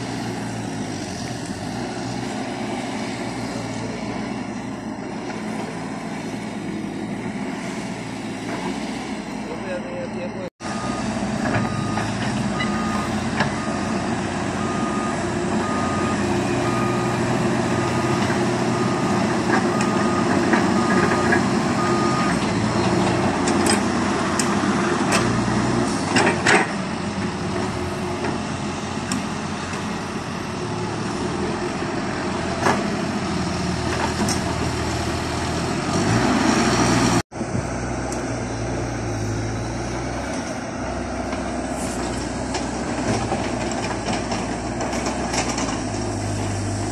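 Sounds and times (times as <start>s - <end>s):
excavator diesel engine: 0.0s - 46.9s
beeping warning alarm: 10.7s - 14.0s, 14.6s - 17.2s, 17.8s - 22.4s.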